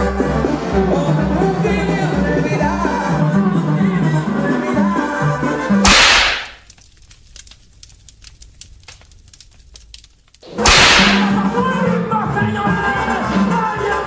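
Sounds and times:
background music: 0.0 - 6.4, 10.4 - 14.0
whip-like whoosh: 5.9 - 6.6
faint crackling clicks: 6.4 - 10.5.

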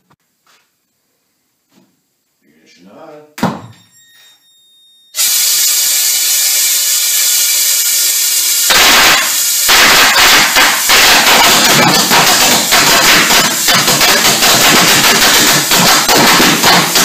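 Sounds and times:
air feed hissing and whistling: 5.1 - 17.0
engine firing sharp detonations: 8.6 - 17.0.

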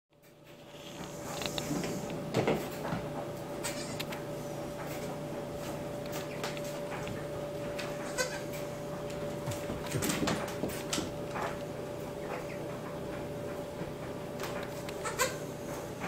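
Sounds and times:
steady hum: 0.2 - 16.0
hooves tapping on wooden floor: 8.9 - 11.7.

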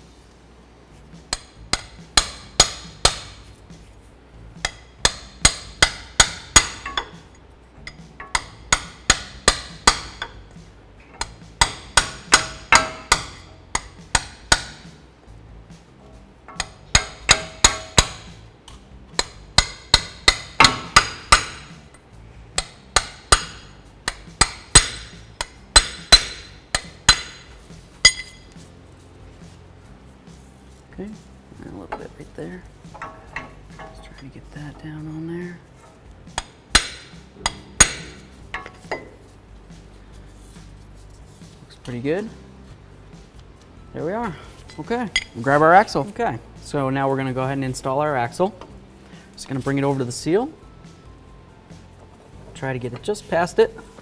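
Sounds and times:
hammer striking steel punch: 1.3 - 3.5, 4.6 - 7.2, 7.8 - 10.4, 11.2 - 14.9, 16.5 - 18.4, 19.2 - 21.9, 22.6 - 28.4, 36.3 - 39.2.

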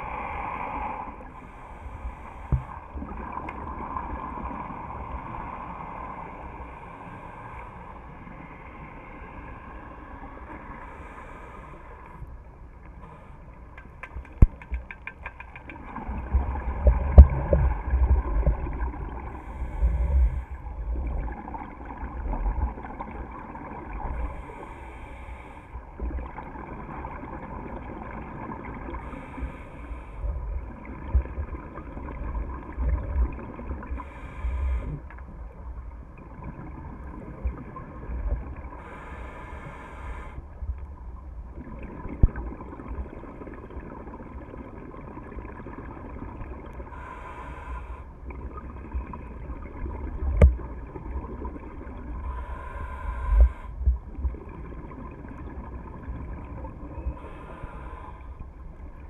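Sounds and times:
underwater bubbles gurgling: 0.0 - 59.0
quick clicks: 13.8 - 15.8.

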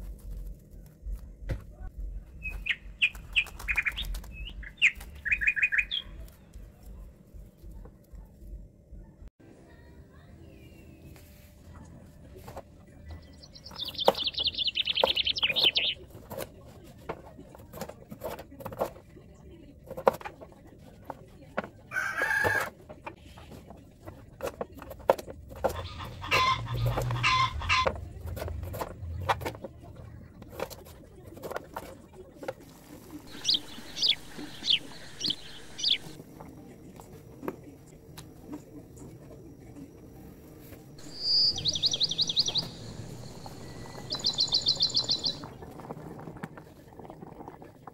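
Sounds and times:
bird chirps: 2.3 - 6.3, 13.1 - 16.0, 33.3 - 36.2, 41.0 - 45.5
rooster crowing: 21.9 - 22.7
chickens clucking: 25.1 - 29.7, 33.1 - 36.2, 41.0 - 45.6.

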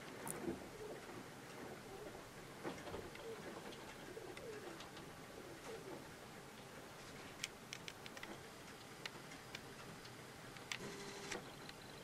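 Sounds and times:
pigeon cooing: 0.5 - 2.2, 3.0 - 6.0.

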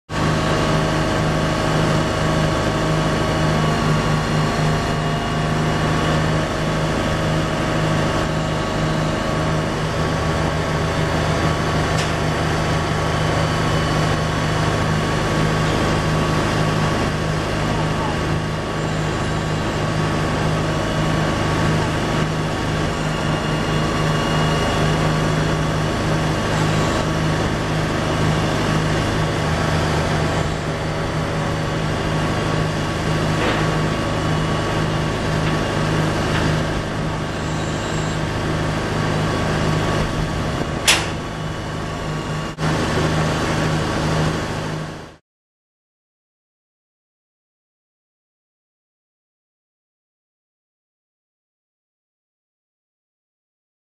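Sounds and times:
engine running steadily: 0.1 - 45.2.

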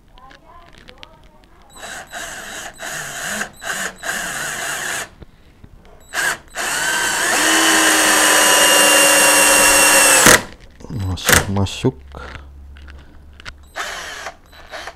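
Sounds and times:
cordless drill driving screw: 1.7 - 5.2, 6.1 - 10.5, 13.7 - 14.9.

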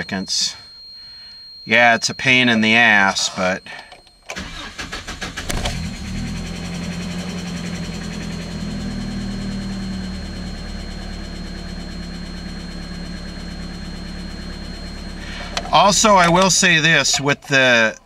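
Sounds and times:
engine cranking: 4.3 - 6.1
pickup engine idling: 4.4 - 17.8.

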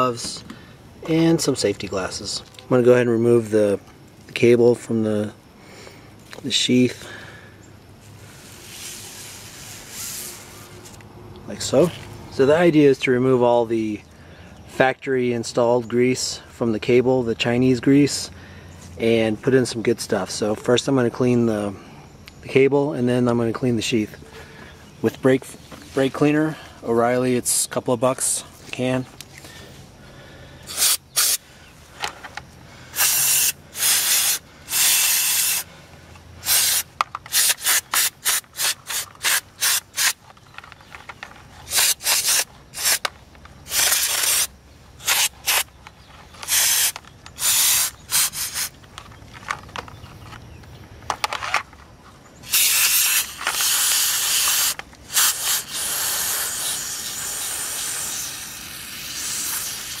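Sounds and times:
aerosol spray hissing: 30.7 - 31.4, 32.9 - 35.7, 36.4 - 40.2, 41.7 - 43.0, 43.7 - 45.7, 46.5 - 48.7, 52.5 - 60.0.

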